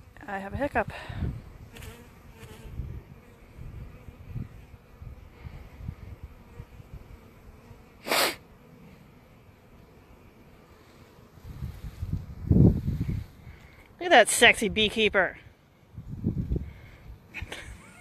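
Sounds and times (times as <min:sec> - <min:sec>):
honeybees buzzing: 0:00.0 - 0:18.0
wind rumble on microphone: 0:00.4 - 0:07.3, 0:11.4 - 0:13.6, 0:15.9 - 0:17.2.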